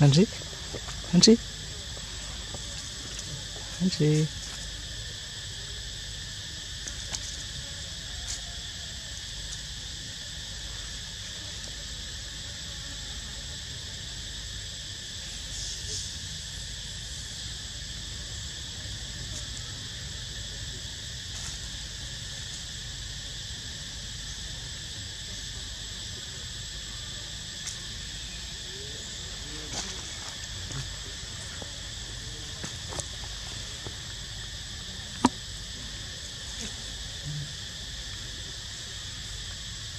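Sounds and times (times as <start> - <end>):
insect chorus drone: 0.0 - 39.9
faint ticks: 35.1 - 35.4.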